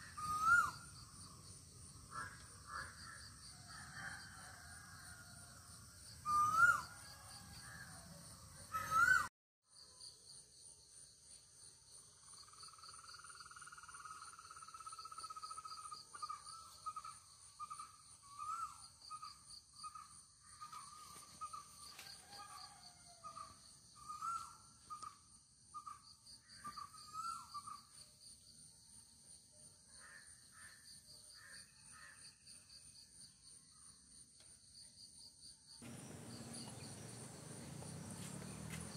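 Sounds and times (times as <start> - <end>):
pulsing insect chorus: 0.0 - 9.2, 11.6 - 38.9
crow cawing: 2.1 - 3.3.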